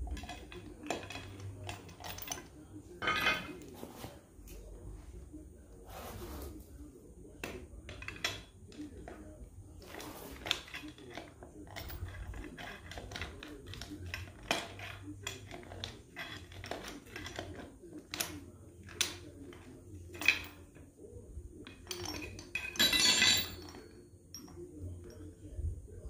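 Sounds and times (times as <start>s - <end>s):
steel chain clinking and rattling: 0.0s - 3.6s, 9.8s - 20.8s, 21.6s - 25.4s.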